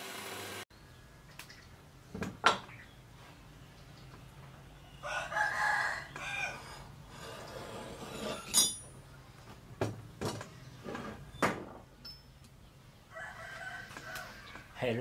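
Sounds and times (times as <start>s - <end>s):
rooster crowing: 5.0s - 6.8s, 13.1s - 14.7s
metal-on-metal clink: 8.4s - 9.0s, 12.0s - 12.4s.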